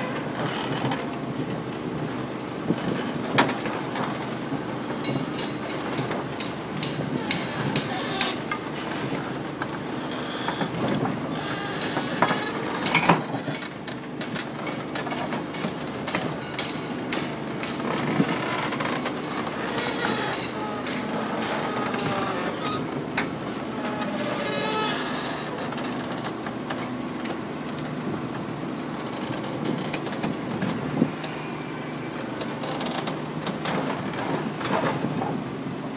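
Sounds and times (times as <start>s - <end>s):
excavator engine running: 0.0s - 35.9s
steel tracks clanking on deck: 2.6s - 28.4s.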